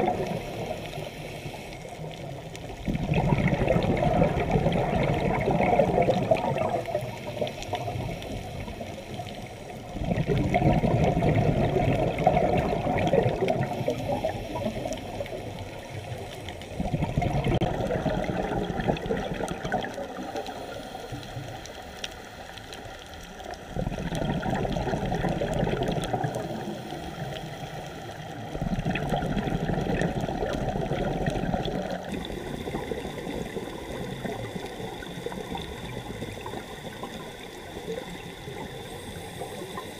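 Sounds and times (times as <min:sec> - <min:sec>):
underwater bubbling exhalation: 0:00.0 - 0:21.6, 0:23.5 - 0:39.9
quiet water noise: 0:00.0 - 0:39.9.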